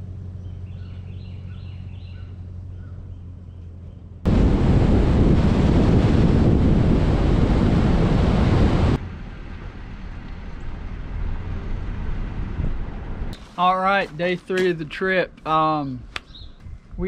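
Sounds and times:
road and engine noise: 0:00.0 - 0:17.0
wind rushing over microphone: 0:04.3 - 0:09.0, 0:11.4 - 0:13.4.

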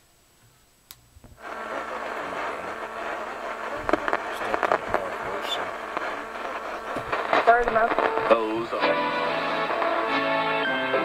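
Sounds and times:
radio static hiss with hum: 0:00.0 - 0:11.0.

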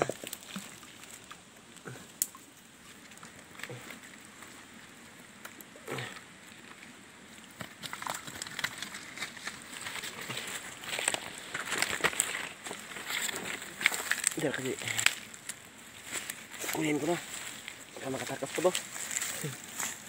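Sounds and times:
running water in a stream: 0:00.0 - 0:20.0
fishing net clicks and splashes: 0:07.5 - 0:15.6.

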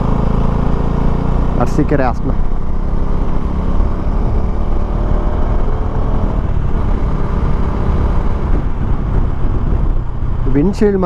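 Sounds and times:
motorcycle engine running: 0:00.0 - 0:11.0
wind buffeting microphone: 0:02.4 - 0:11.0.

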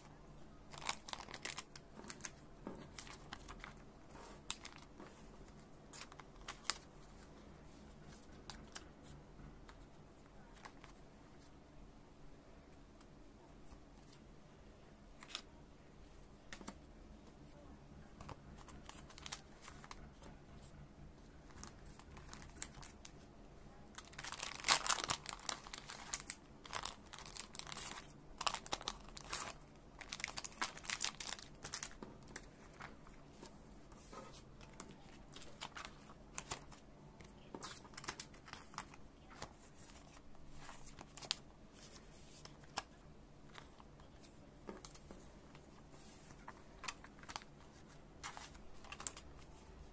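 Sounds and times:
faint low hum: 0:00.0 - 0:49.9
plastic sleeves crinkling: 0:00.6 - 0:07.4, 0:18.1 - 0:20.4, 0:21.2 - 0:23.2, 0:23.9 - 0:49.9.

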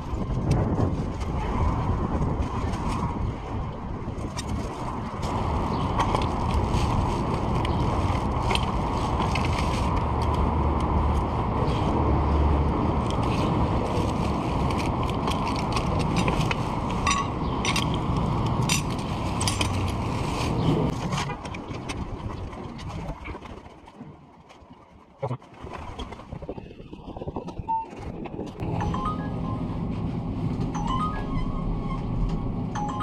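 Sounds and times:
wind and road noise: 0:00.0 - 0:33.0
bike rattling clicks: 0:14.7 - 0:20.0.

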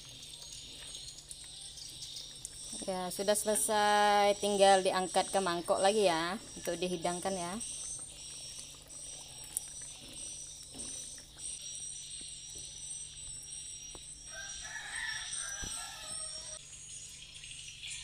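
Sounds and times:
high-pitched insect drone: 0:00.0 - 0:18.0
rooster crowing: 0:14.3 - 0:16.6.

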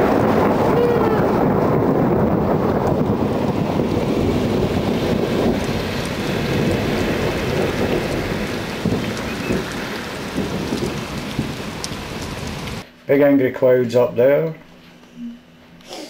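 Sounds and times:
rolling thunder: 0:00.0 - 0:12.8.

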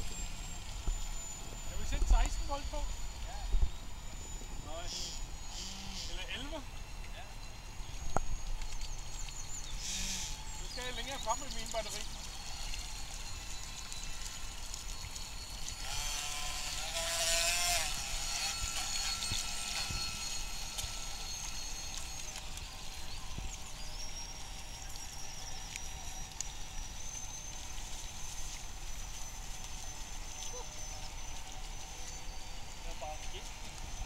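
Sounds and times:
model boat motors whining: 0:00.0 - 0:34.0.

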